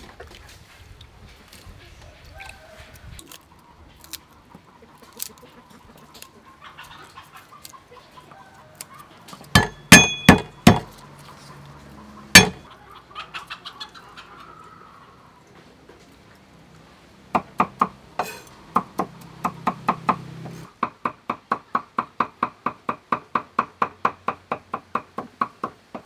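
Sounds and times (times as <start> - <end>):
cleaver knocking on wooden block: 9.5 - 10.9, 12.4 - 12.6
steel blade ringing: 9.6 - 10.8, 12.4 - 12.6.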